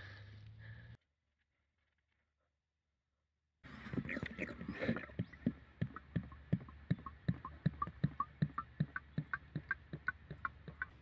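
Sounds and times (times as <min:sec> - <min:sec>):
oil glugging from plastic jug: 0:03.7 - 0:11.0.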